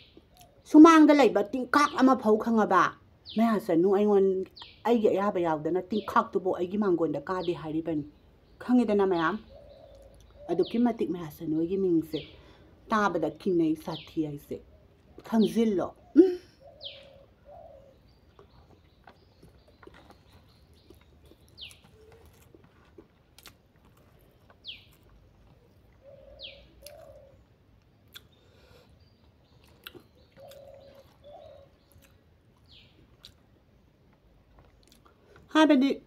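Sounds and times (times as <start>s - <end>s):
dove cooing: 9.4s - 10.7s, 16.0s - 18.0s, 26.0s - 27.4s, 30.4s - 31.8s.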